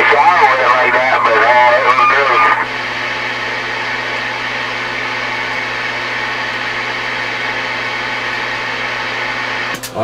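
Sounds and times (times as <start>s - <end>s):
radio static hiss: 0.0s - 2.9s
low steady hum: 0.0s - 7.8s.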